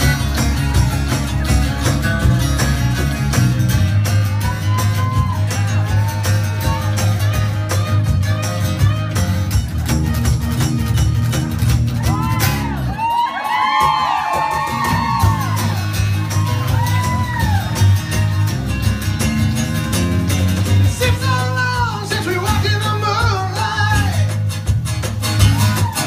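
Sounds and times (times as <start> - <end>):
audience whooping and yelling: 0.0 - 2.6, 3.9 - 8.0, 11.8 - 18.8, 25.3 - 26.0
bass playing: 0.0 - 13.1, 13.8 - 26.0
acoustic guitars playing: 0.0 - 26.0.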